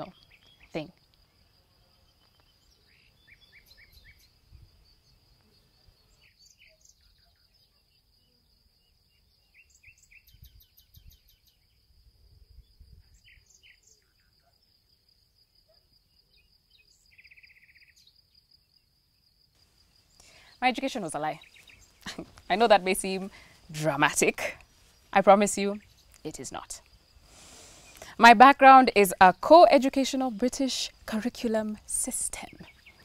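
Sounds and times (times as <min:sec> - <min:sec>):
bird chirps: 0:00.0 - 0:00.9, 0:02.0 - 0:11.8, 0:12.6 - 0:14.7, 0:15.7 - 0:18.4, 0:20.1 - 0:23.3, 0:32.2 - 0:33.0.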